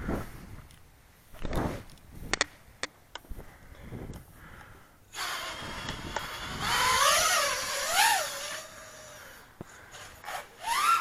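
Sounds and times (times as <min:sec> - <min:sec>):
drone propellers whining: 0:05.1 - 0:11.0.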